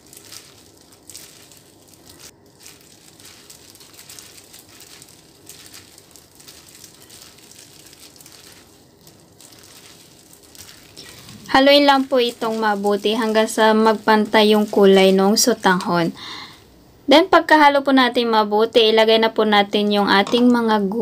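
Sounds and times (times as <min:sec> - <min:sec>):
plastic glove crinkling: 0:00.0 - 0:16.8.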